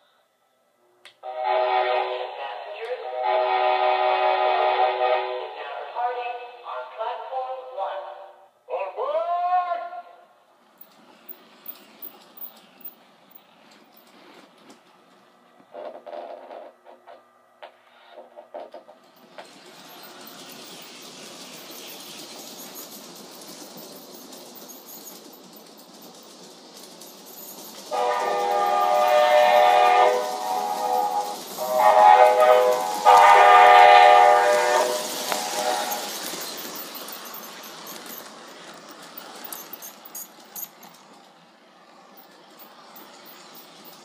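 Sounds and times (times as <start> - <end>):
model train horn toot: 1.2 - 2.4, 3.0 - 5.6, 27.9 - 36.1
model train motor and wheels running: 10.6 - 16.4, 18.9 - 44.0.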